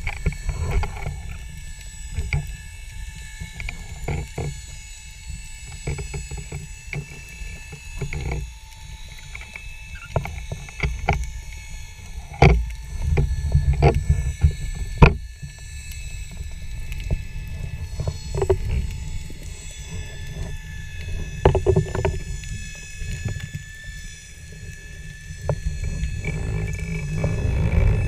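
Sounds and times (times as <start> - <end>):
muffled underwater rumble: 0.0 - 28.0
sharp clicks and knocks: 12.3 - 15.2.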